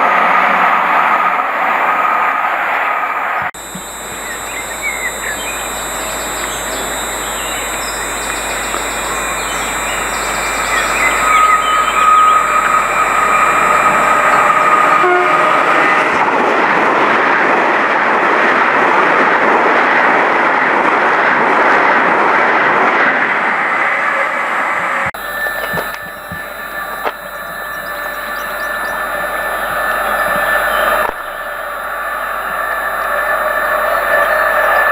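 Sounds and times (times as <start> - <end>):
train horn: 3.8 - 16.2
train passing at speed: 11.1 - 25.0, 27.4 - 34.9.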